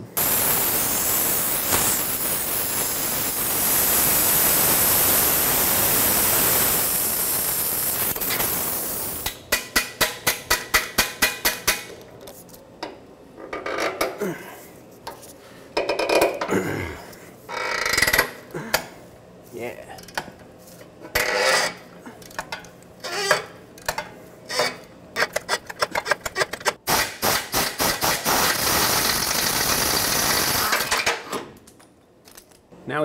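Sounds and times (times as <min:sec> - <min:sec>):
torch flame hissing: 0:00.0 - 0:09.2, 0:26.9 - 0:30.7.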